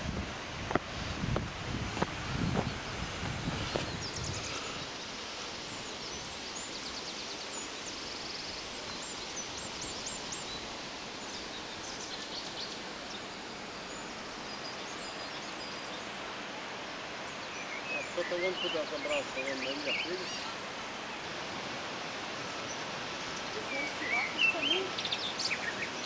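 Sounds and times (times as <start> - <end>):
stream water rushing over falls: 0.0 - 26.0
small birds chirping: 2.4 - 21.4, 22.2 - 26.0.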